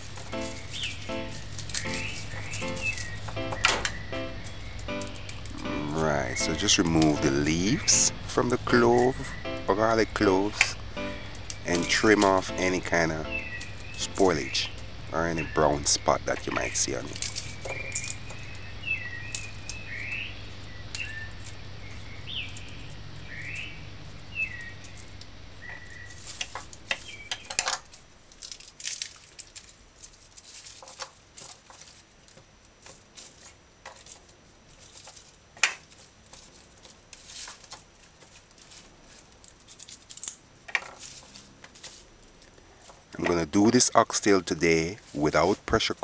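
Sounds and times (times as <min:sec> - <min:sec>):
bird chirping: 0:00.0 - 0:28.4
garlic skins crackling: 0:00.0 - 0:46.0.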